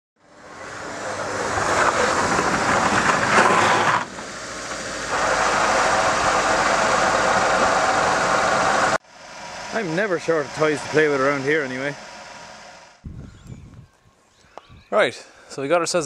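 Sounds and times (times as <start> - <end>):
car engine running: 0.3 - 13.0
tyres on gravel: 0.6 - 8.8.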